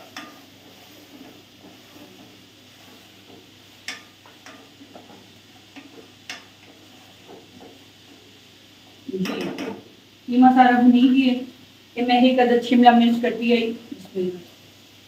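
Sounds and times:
spatula clacking against pot: 0.0s - 0.4s, 3.2s - 7.8s
spatula scraping meat in pot: 0.0s - 8.3s
faint sizzle: 0.0s - 15.0s.

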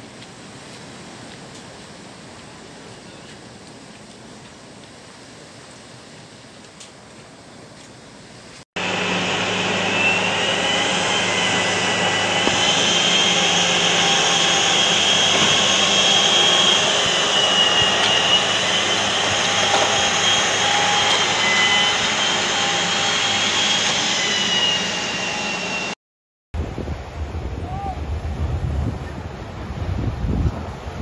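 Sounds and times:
crane engine and winch drone: 8.8s - 26.0s.

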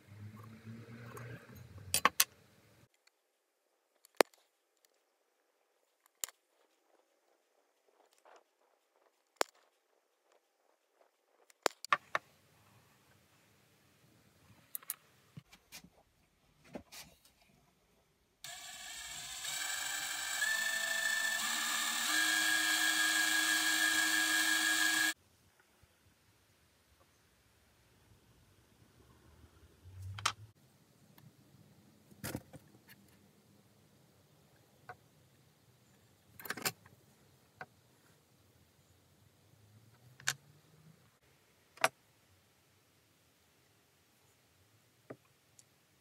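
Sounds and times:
cordless drill whining: 18.4s - 25.2s.

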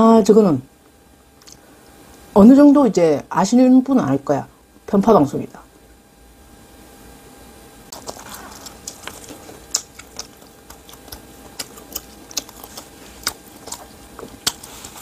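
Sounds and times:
person chewing and lip smacking: 1.4s - 1.6s, 7.9s - 15.0s.

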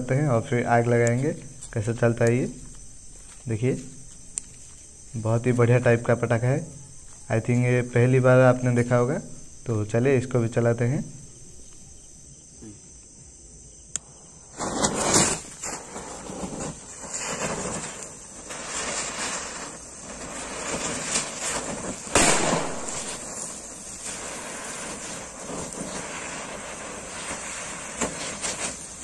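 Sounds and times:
hissing crackling sparks: 0.0s - 12.0s, 13.9s - 29.0s
firecracker fuse click: 1.0s - 4.9s, 13.9s - 16.0s, 16.7s - 29.0s
firecracker bursts: 14.0s - 29.0s.

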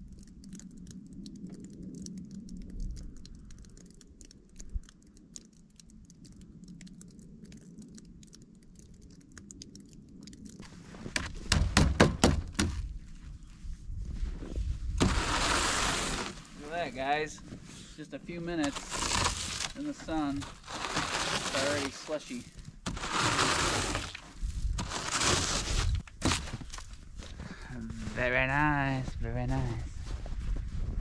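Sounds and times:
snowmelt dripping: 0.0s - 28.8s
sharp loud knocks: 11.2s - 12.8s
brush sweeping snow: 15.0s - 18.0s, 18.6s - 26.6s.

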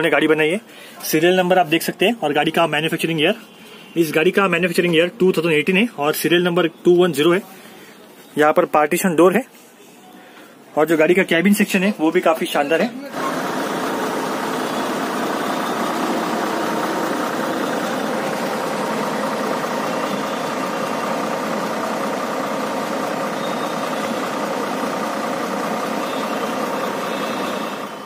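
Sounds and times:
diesel bus engine idling: 13.1s - 28.0s.

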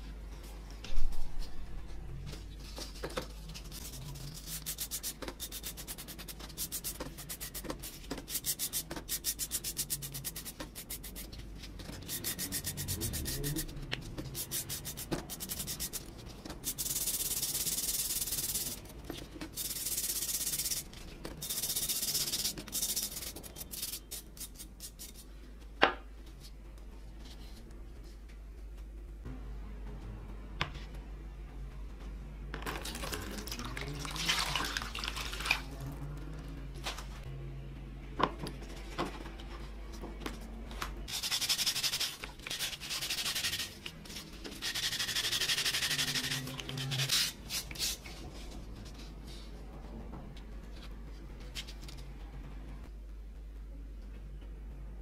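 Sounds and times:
brush scrubbing metal: 11.9s - 16.0s.

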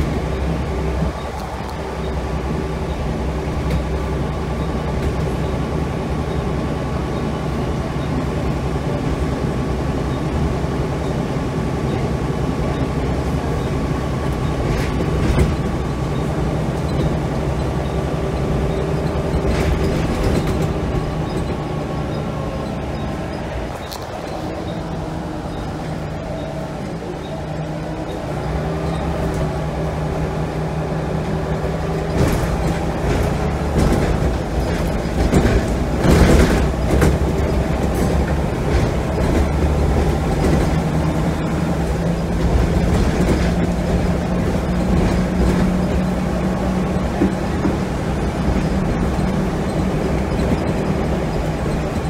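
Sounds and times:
bus diesel engine running: 0.0s - 52.0s
road noise: 0.0s - 52.0s
knocks and rattles: 14.4s - 16.2s, 18.7s - 24.9s, 31.9s - 52.0s.

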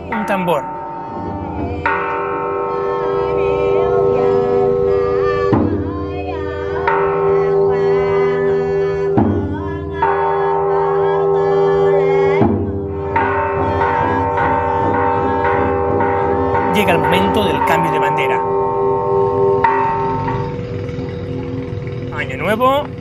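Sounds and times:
large bell ringing: 0.0s - 23.0s
drum beating: 5.4s - 6.9s, 8.9s - 10.0s, 12.2s - 23.0s.

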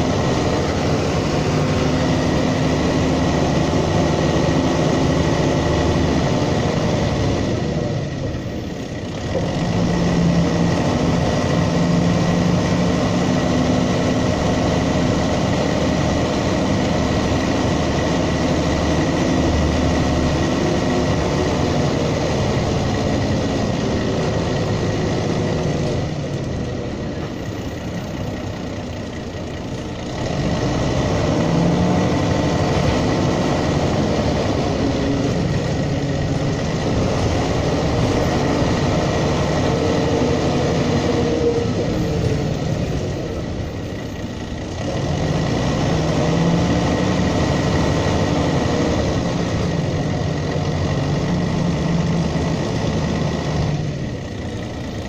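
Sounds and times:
bus diesel engine humming: 0.0s - 55.0s
road noise: 0.0s - 55.0s.

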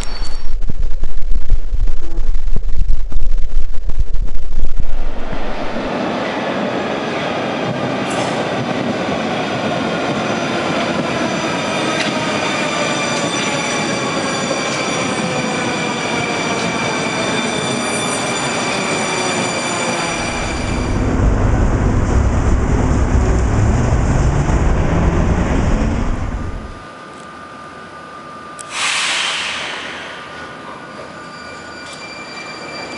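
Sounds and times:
tram rumbling on tracks: 3.7s - 26.9s, 28.6s - 32.9s.

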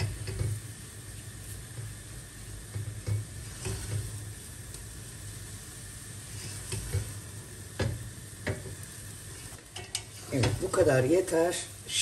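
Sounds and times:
spatula scraping dough in saucepan: 2.7s - 4.5s, 6.2s - 7.3s, 9.3s - 10.8s.

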